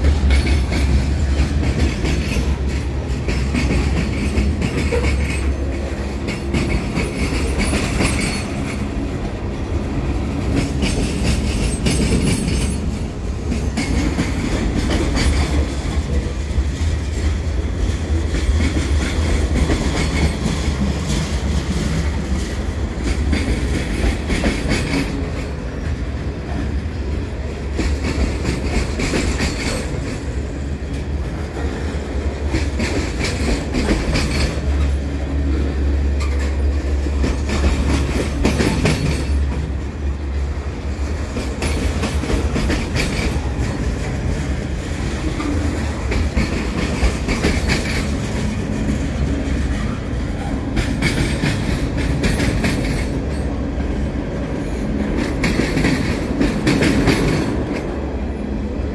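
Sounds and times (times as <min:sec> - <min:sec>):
wheels clacking over rail joints: 0:00.0 - 0:58.3
freight train rumble: 0:00.0 - 0:58.9.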